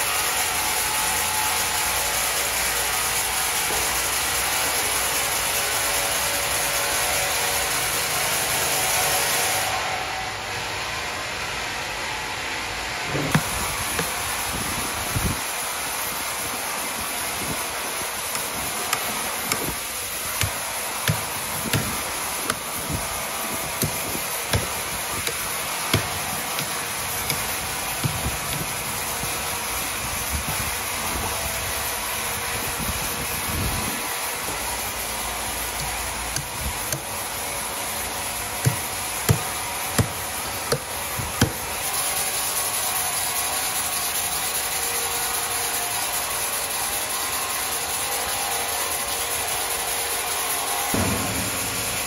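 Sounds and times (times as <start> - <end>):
sawmill machinery hum: 0.0 - 52.0
wood knocking: 13.2 - 14.2, 23.8 - 28.8, 38.6 - 40.8.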